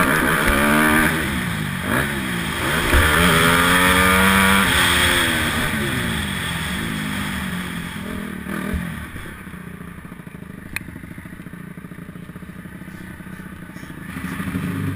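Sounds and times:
motorbike engine running: 0.0s - 14.9s.

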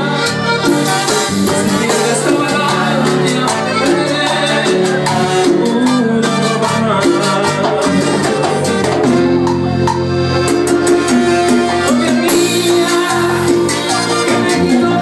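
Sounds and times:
drums and cymbals beat: 0.0s - 15.0s
keyboards: 0.0s - 15.0s
man singing into microphone: 1.4s - 9.0s, 11.6s - 15.0s.

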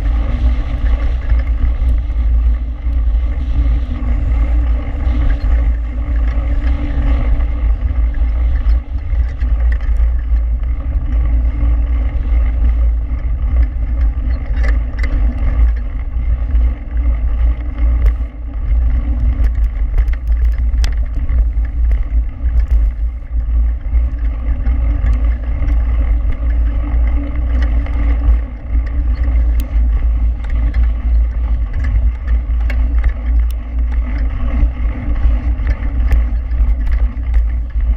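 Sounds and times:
small ticks and rattles: 0.0s - 37.9s
wind buffeting and tyre rumble: 0.0s - 37.9s.

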